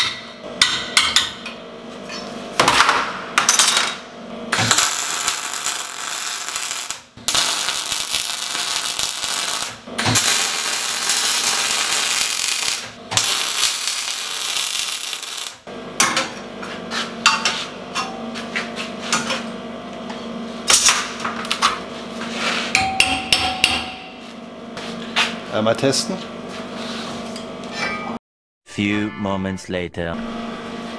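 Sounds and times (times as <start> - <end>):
welder arc crackling hiss: 4.6 - 15.6.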